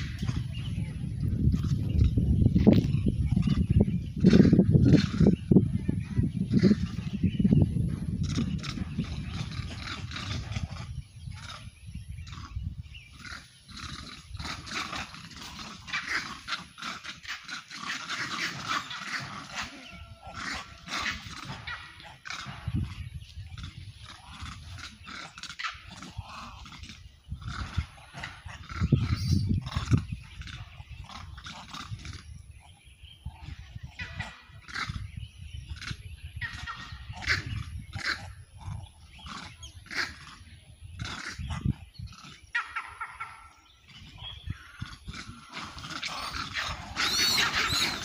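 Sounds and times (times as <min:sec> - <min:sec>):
monkeys calling: 0:11.4 - 0:35.1, 0:35.7 - 0:48.0
monkeys screeching: 0:44.6 - 0:48.0.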